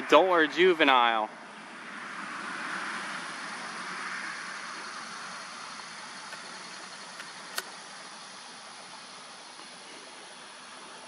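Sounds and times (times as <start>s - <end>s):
outdoor background noise: 0.0s - 11.0s
sharp click: 7.2s - 7.8s.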